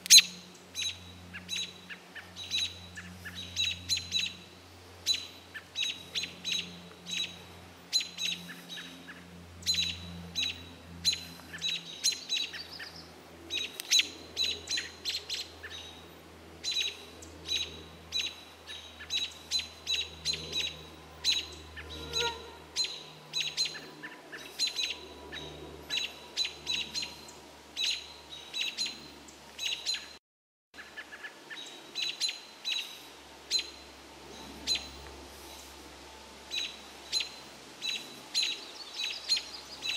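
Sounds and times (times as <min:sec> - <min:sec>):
bird alarm calls: 0:16.6 - 0:27.2.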